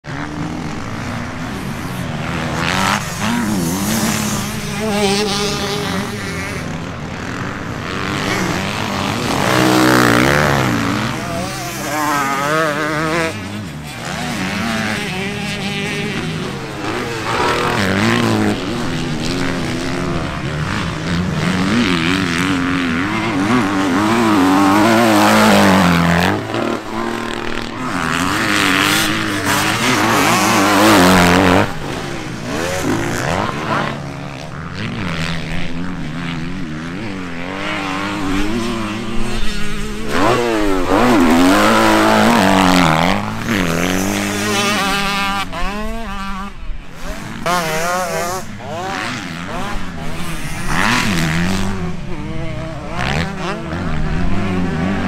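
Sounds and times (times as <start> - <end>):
motocross bike engine revving: 0.1 - 55.0.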